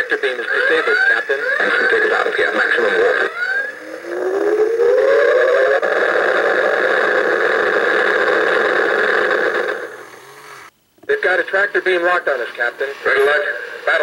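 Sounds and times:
electronic warp sound effect: 3.3s - 5.9s.

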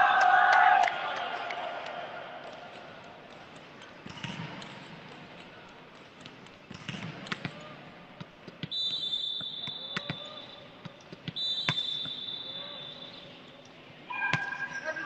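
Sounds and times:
volleyball hitting the floor: 2.5s - 5.0s, 6.0s - 7.6s
referee's whistle blast: 8.7s - 10.6s, 11.4s - 13.2s, 14.1s - 15.0s.

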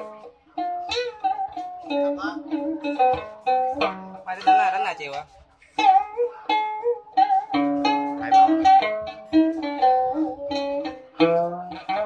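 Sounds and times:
plucked lute notes: 0.0s - 12.0s.

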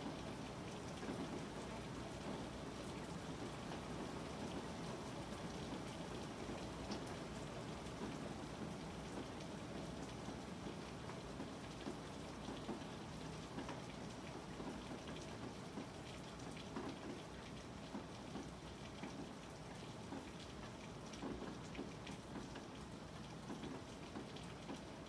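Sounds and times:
rain falling heard indoors: 0.0s - 25.0s.

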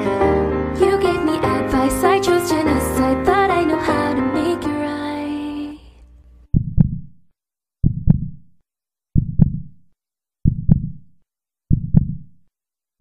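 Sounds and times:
heartbeat double thump: 6.5s - 7.2s, 7.8s - 8.5s, 9.2s - 9.8s, 10.4s - 11.1s, 11.7s - 12.3s.

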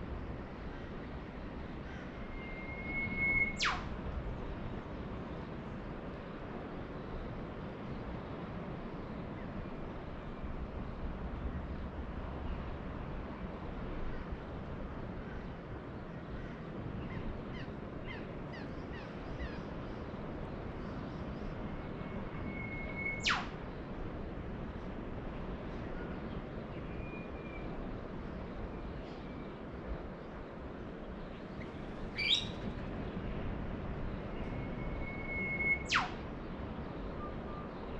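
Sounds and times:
distant ocean surf rumble: 0.0s - 37.9s
bird whistle with whip-crack: 2.6s - 3.9s, 22.5s - 23.5s, 32.2s - 32.6s, 34.5s - 36.2s
small birds chirping: 31.5s - 32.6s.

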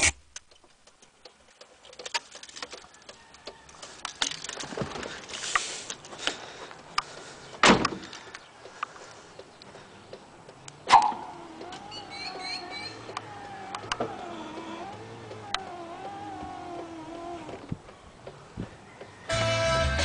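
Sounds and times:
light clicks taps and rustles: 0.3s - 10.8s
loud thump: 7.6s - 8.0s.

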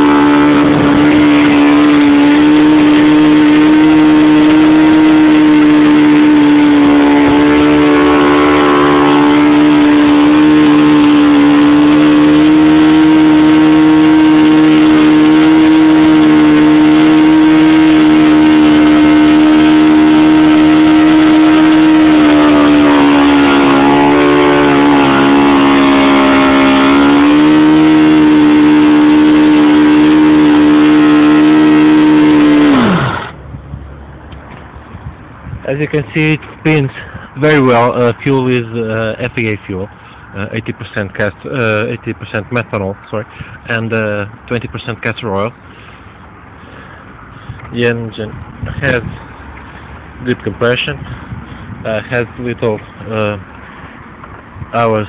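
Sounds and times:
model glow engine running: 0.1s - 33.4s.

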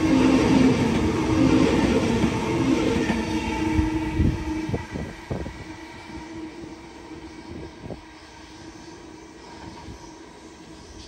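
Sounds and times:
electric train passing: 0.0s - 11.0s.

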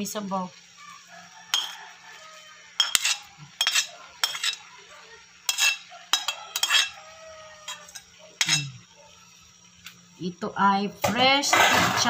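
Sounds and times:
metal spatula scraping a plate: 1.5s - 1.9s, 2.8s - 4.7s, 5.5s - 8.8s, 11.0s - 12.0s.

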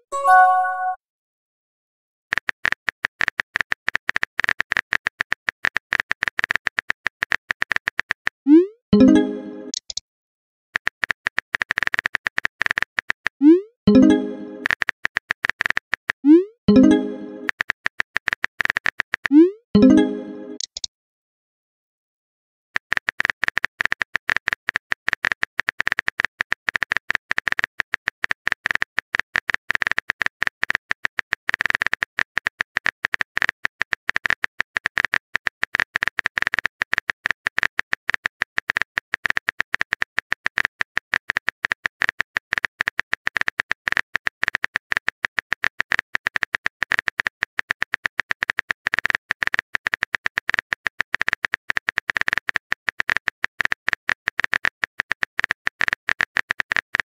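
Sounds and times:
phone keyboard typing clicks: 16.7s - 20.9s, 22.8s - 57.0s.

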